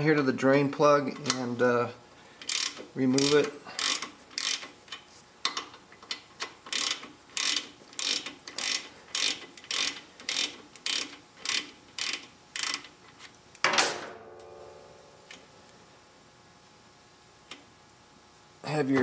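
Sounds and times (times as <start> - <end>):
hand ratchet clicking: 2.4 - 13.0.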